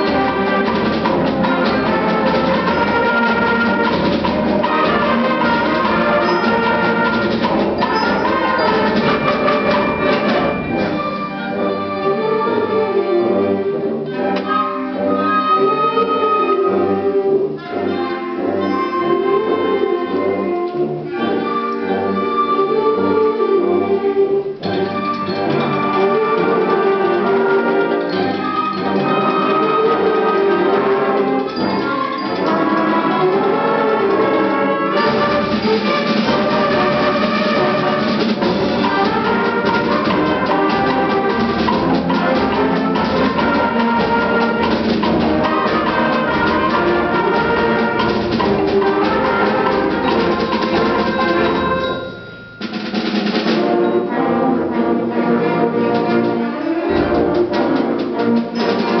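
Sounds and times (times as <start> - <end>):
concert band playing: 0.0 - 59.0.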